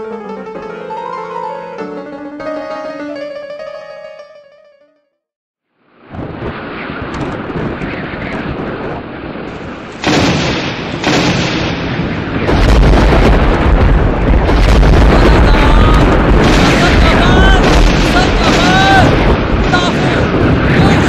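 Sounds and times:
heavy wind: 0:05.8 - 0:21.0
deep rumble: 0:06.0 - 0:21.0.

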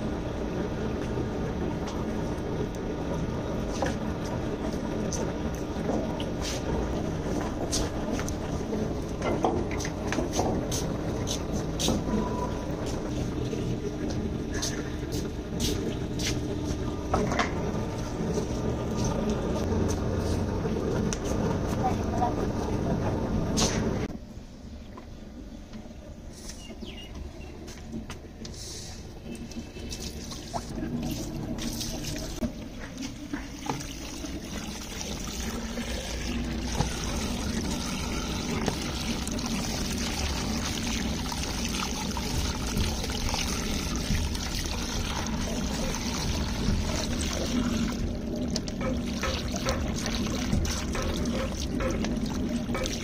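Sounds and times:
water pouring from a hose: 0:28.7 - 0:53.0.

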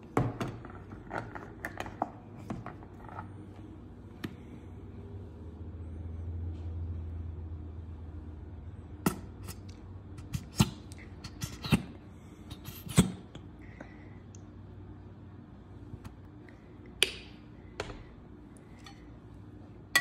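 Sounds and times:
low hum: 0:00.0 - 0:11.3.

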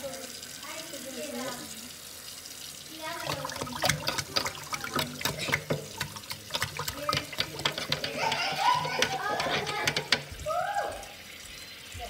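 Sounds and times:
water sloshing in a metal sink: 0:02.8 - 0:12.0.

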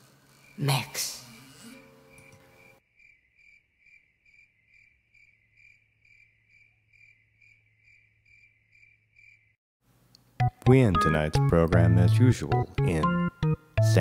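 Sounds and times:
cricket chirping: 0:00.0 - 0:09.6.

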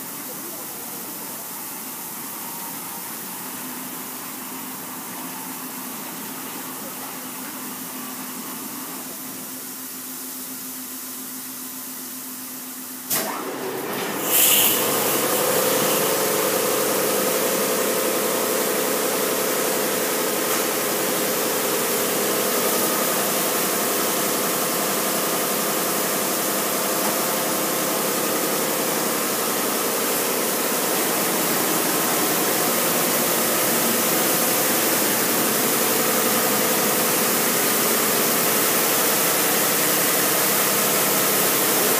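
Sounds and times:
car wash machinery drone: 0:00.0 - 0:41.9.

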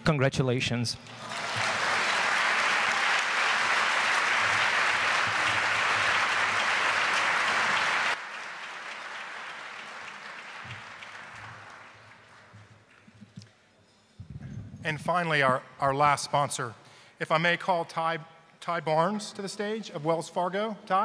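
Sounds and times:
audience applauding: 0:01.1 - 0:13.4.

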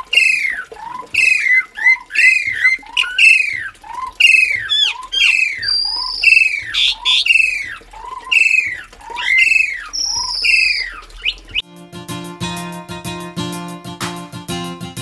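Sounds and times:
starling falling slurred calls: 0:00.0 - 0:11.6.

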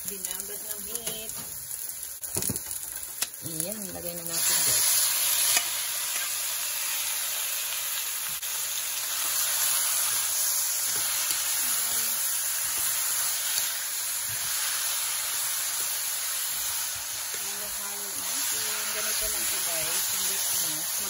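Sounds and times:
meat sizzling in a frying pan: 0:00.0 - 0:21.0
spatula stirring in pan: 0:09.0 - 0:21.0.

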